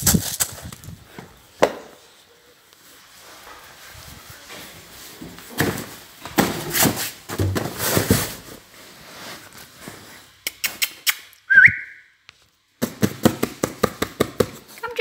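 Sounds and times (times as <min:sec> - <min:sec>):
scuffling and rustling: 0:00.0 - 0:10.4
person whistling: 0:11.5 - 0:12.1.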